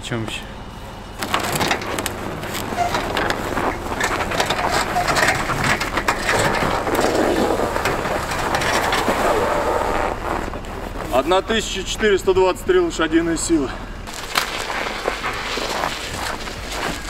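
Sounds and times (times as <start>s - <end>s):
snow crunching under boots: 0.7s - 12.2s, 14.0s - 17.0s
knocks and clatter on metal ramps: 1.2s - 10.2s.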